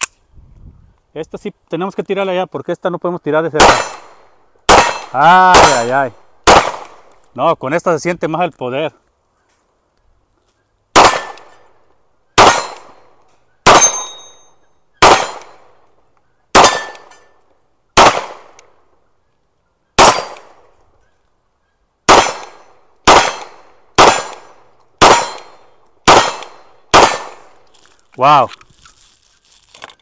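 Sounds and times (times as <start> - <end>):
pistol shots: 3.6 - 7.1, 10.9 - 15.8, 16.5 - 17.4, 18.0 - 18.8, 20.0 - 20.8, 22.1 - 27.6.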